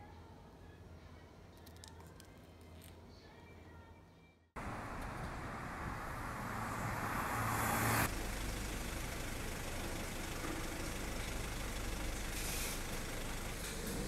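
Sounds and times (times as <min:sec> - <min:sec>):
low traffic rumble: 0:04.6 - 0:14.0
motor vehicle passing: 0:04.6 - 0:14.0.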